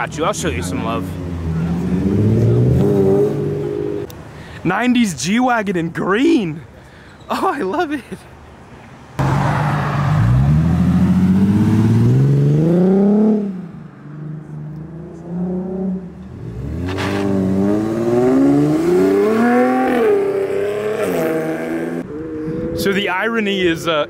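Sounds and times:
second car engine revving: 0:00.0 - 0:04.1, 0:09.2 - 0:22.8
car accelerating away: 0:00.4 - 0:04.1, 0:09.2 - 0:22.8.

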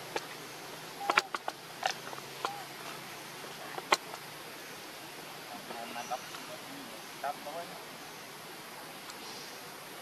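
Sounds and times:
clicks and crackles on dry leaves: 0:00.0 - 0:04.3.

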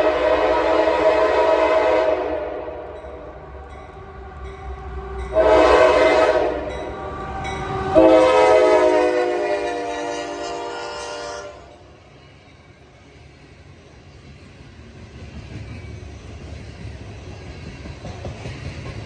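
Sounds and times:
locomotive air horn blasts: 0:00.0 - 0:03.0, 0:05.3 - 0:06.9, 0:07.8 - 0:11.8
train rumbling past: 0:00.0 - 0:19.0.

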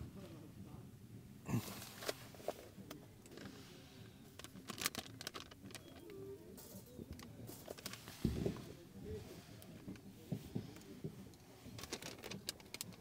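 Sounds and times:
plastic packaging crinkling: 0:04.4 - 0:06.2, 0:11.8 - 0:13.0
dull thump: 0:08.2 - 0:08.7.

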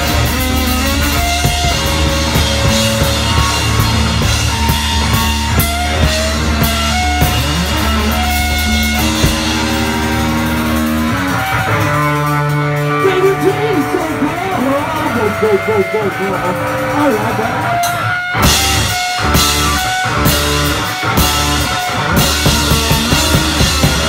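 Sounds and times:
steady bass note: 0:00.0 - 0:17.5
live rock band playing: 0:00.0 - 0:24.0.

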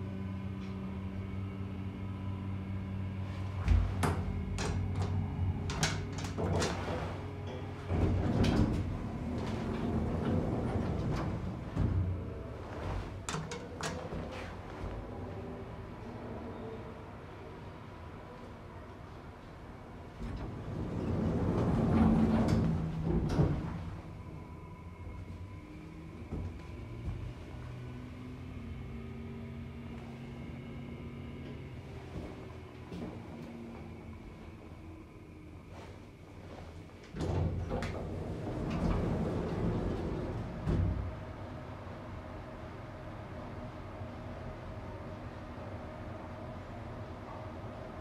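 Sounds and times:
elevator humming: 0:00.0 - 0:48.0
elevator car thump: 0:03.5 - 0:07.2, 0:07.8 - 0:15.1.

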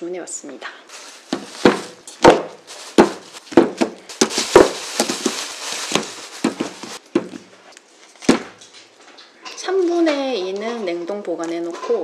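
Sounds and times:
foil wrappers crinkling: 0:00.9 - 0:07.3.

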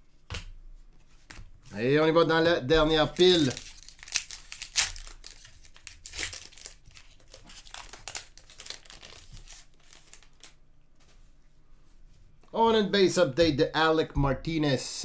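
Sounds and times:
foil wrapper tearing and crinkling: 0:03.0 - 0:10.6.

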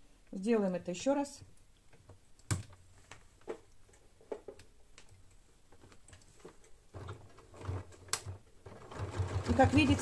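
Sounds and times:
sewing machine stitching: 0:06.9 - 0:10.0.

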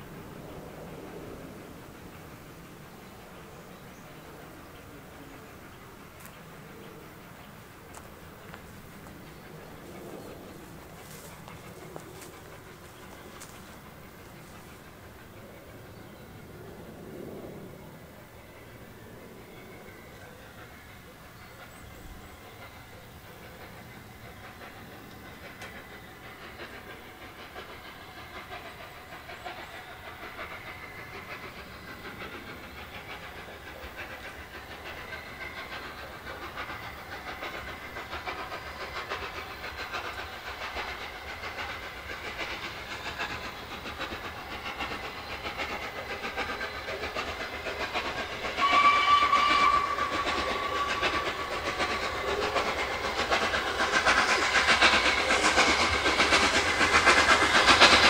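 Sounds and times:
steam locomotive passing: 0:00.0 - 0:58.0
steam whistle blast: 0:48.6 - 0:51.2.

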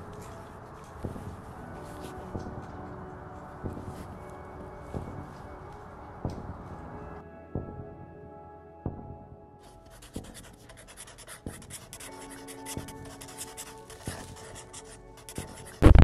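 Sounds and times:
soft background music: 0:00.0 - 0:16.0
pen scratching on paper: 0:09.9 - 0:16.0.

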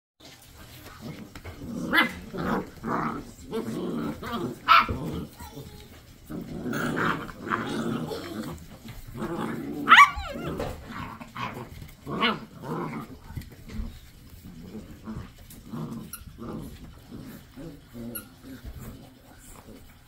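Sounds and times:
puppies growling and yipping: 0:00.6 - 0:20.0
puppy high yelp: 0:09.9 - 0:10.7.

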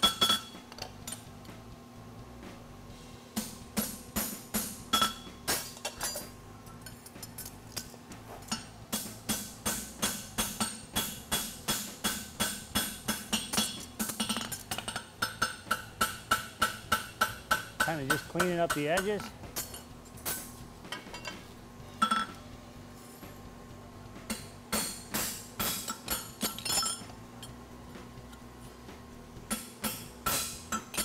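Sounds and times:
hammer striking horseshoe on anvil: 0:00.0 - 0:00.6, 0:03.4 - 0:06.3, 0:08.5 - 0:21.4, 0:22.0 - 0:22.4, 0:24.3 - 0:27.0, 0:29.5 - 0:31.0.

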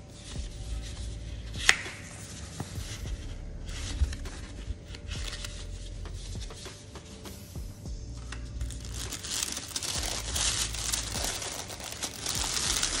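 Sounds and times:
paper and box rustling: 0:08.6 - 0:13.0.

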